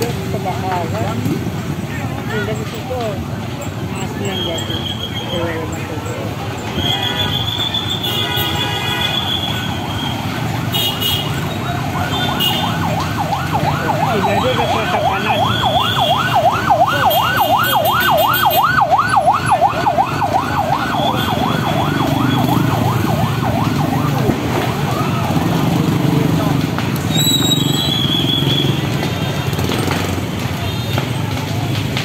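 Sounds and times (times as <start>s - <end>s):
emergency siren fast yelp: 6.7s - 8.2s, 8.9s - 26.4s, 27.0s - 29.4s.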